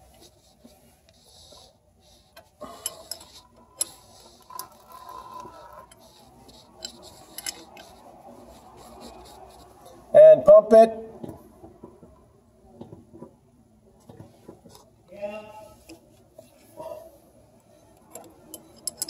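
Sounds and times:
wrench and fittings clinking: 2.6 - 8.0, 17.9 - 19.0.

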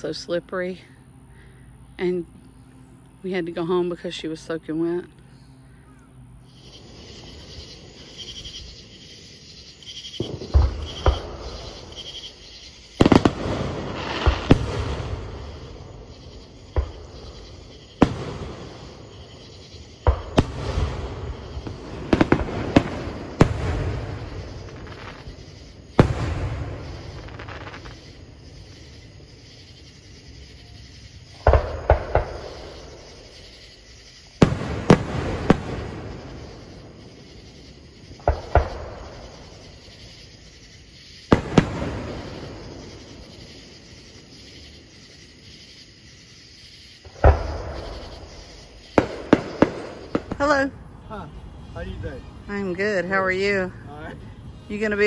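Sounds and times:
rolling rumble: 6.5 - 46.4
distant fireworks bangs: 6.5 - 53.6.

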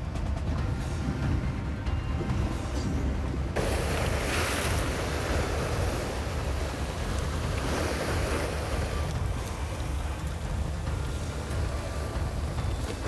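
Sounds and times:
sea waves breaking on shore: 0.0 - 13.0
wind rumbling on microphone: 0.0 - 13.0.

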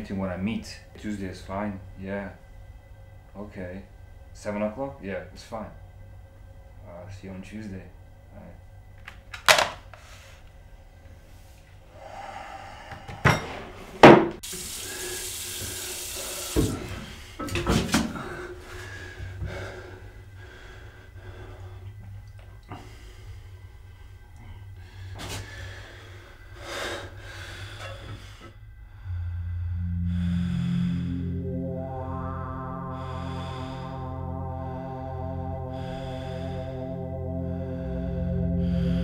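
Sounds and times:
tap running into a sink: 16.5 - 16.8.

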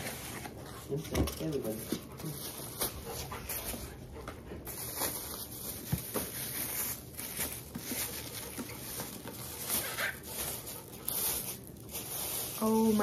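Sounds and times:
plastic wrap rustling: 0.0 - 13.0.

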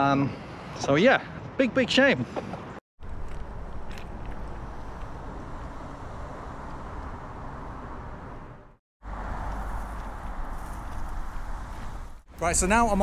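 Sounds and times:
road traffic noise: 2.4 - 12.9.

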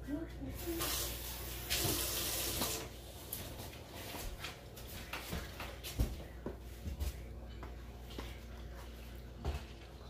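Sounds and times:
water pouring: 0.6 - 3.0.

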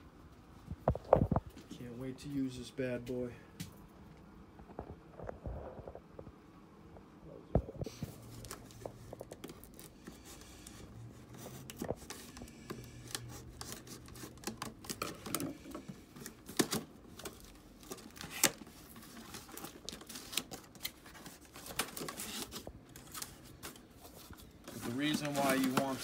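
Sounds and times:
cardboard flaps scraping and rustling: 7.9 - 26.0.

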